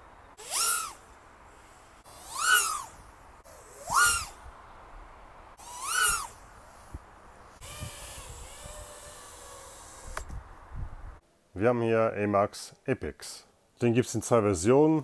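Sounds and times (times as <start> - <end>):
drone motors whining: 0.4 - 4.4, 5.6 - 6.4, 7.6 - 10.3.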